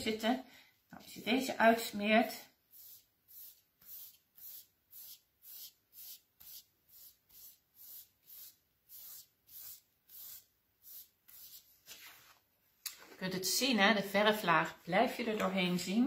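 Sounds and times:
paintbrush swishing strokes: 2.6s - 12.4s.

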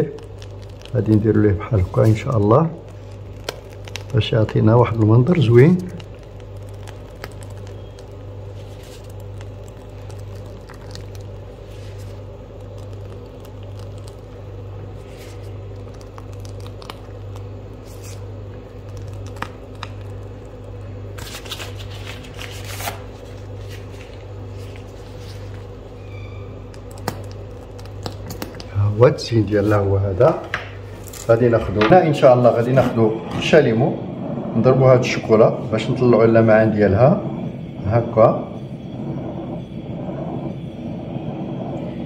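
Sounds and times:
small crackles: 0.0s - 28.9s
piping bag crinkling and rustling: 0.0s - 33.6s
steady low hum: 0.0s - 42.0s.

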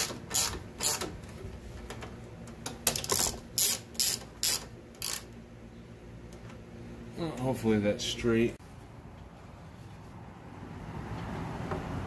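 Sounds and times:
socket ratchet clicking: 2.7s - 5.3s.

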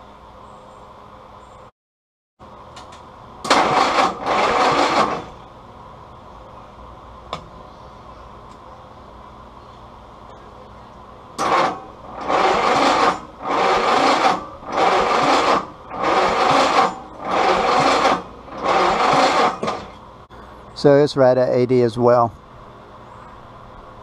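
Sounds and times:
engine cranking by starter: 3.4s - 5.5s, 11.4s - 20.1s.

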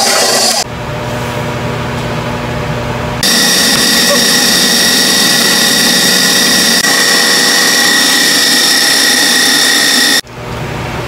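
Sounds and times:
stand mixer motor whining: 3.2s - 10.2s.

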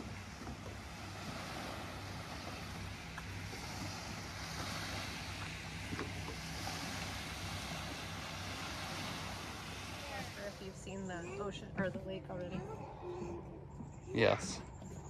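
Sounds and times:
surf washing on beach: 0.0s - 11.8s
steady low hum: 0.0s - 15.0s.

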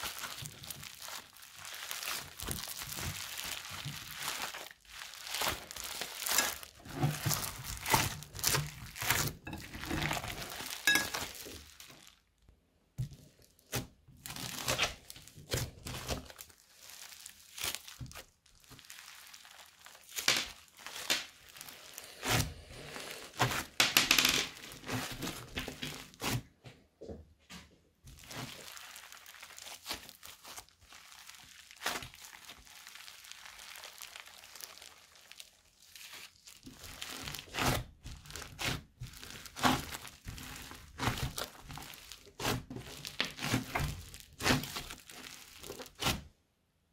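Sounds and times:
slime crinkling and crackling: 0.0s - 26.6s, 27.9s - 46.4s.

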